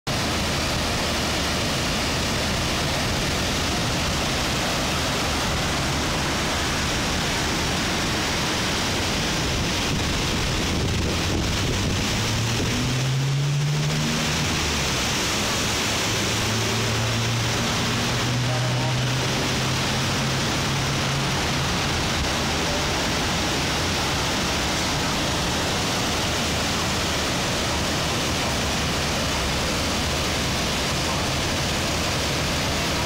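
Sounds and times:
floodwater rushing and roaring: 0.1 - 33.0
low droning tone: 0.2 - 24.4.

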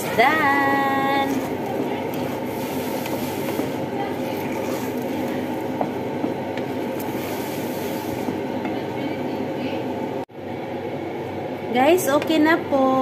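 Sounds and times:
rice simmering in pot: 0.0 - 8.9
wooden spoon stirring and scraping: 0.0 - 9.8.

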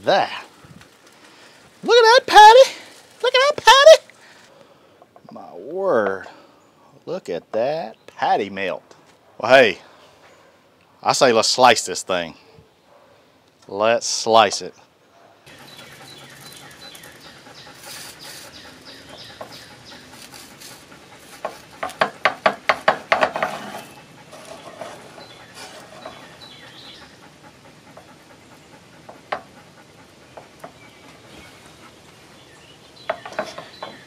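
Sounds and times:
knife sawing through toasted bread: 15.6 - 22.4, 23.3 - 27.2.

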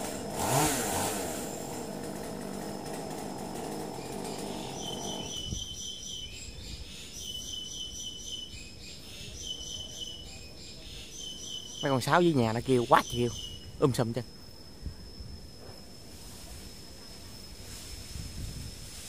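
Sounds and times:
chainsaw running: 0.0 - 5.5.

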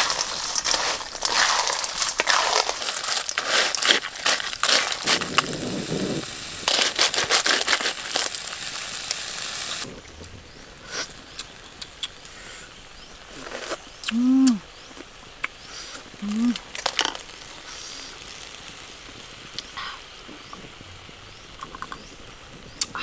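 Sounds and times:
clam shells rattling in a wok: 0.0 - 5.6, 6.5 - 9.8, 16.7 - 17.4.

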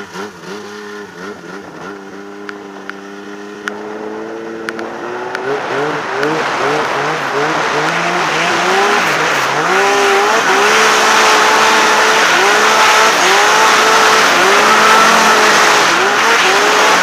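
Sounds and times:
snowmobile engine under load: 0.0 - 17.0.

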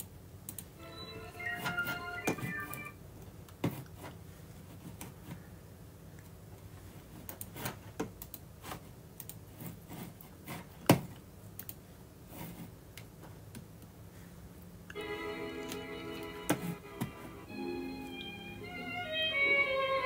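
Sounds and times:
music with violin: 0.8 - 2.9, 15.0 - 20.0
keyboard clicks: 1.4 - 2.9.

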